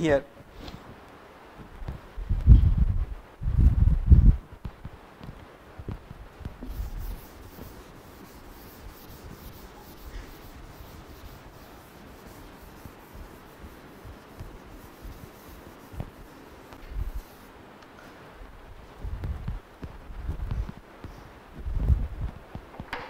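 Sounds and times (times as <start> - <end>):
duster wiping chalkboard: 5.2 - 17.6, 19.0 - 22.7.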